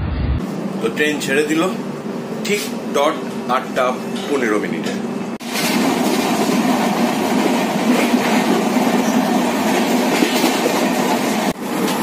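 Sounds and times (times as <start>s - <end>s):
train wheels on rails: 4.8s - 12.0s.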